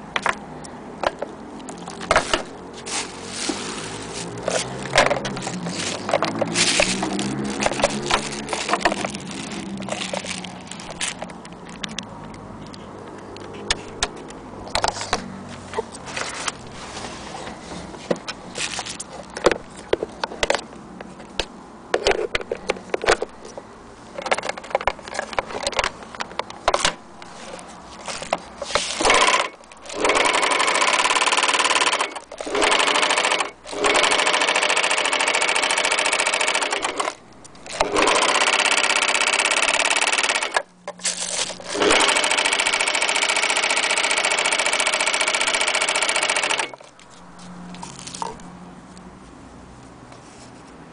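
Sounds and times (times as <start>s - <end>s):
cord and pedal rustling clicks: 1.0s - 49.0s
overlock sewing machine running: 29.0s - 40.6s, 41.5s - 46.8s.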